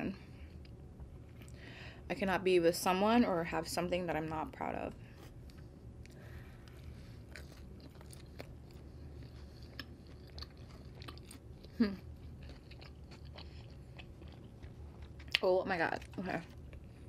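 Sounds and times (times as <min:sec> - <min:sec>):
chewing food: 0:05.2 - 0:17.0
person humming: 0:11.8 - 0:12.0.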